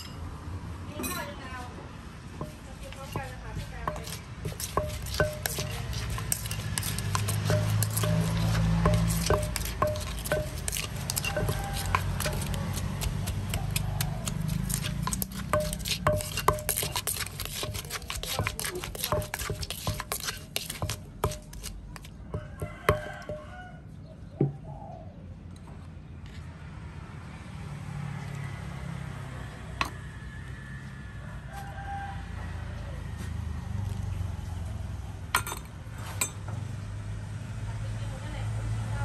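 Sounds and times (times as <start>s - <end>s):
spoon scraping mortar side: 2.4s - 23.4s
pestle pounding in mortar: 2.4s - 23.5s.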